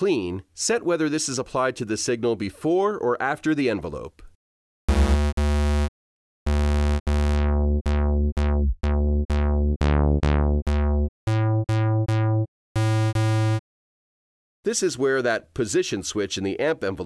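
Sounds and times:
sawtooth synthesizer notes: 0:04.9 - 0:05.9, 0:06.5 - 0:13.6.

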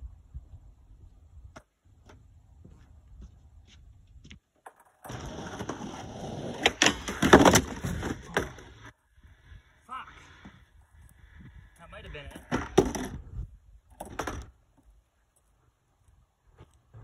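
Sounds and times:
skateboard scraping and knocking: 0:04.1 - 0:09.0, 0:12.2 - 0:15.5.

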